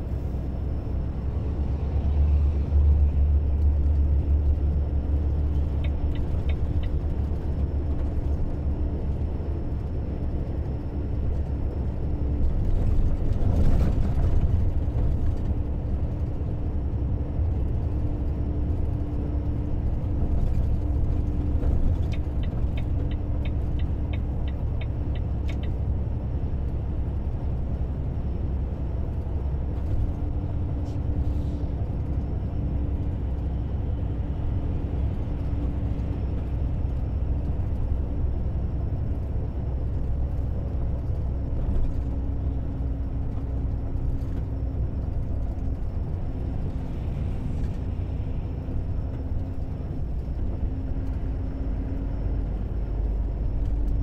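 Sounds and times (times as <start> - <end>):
car road and engine rumble: 0.0 - 54.0
light ticks: 5.8 - 7.0, 22.0 - 25.8.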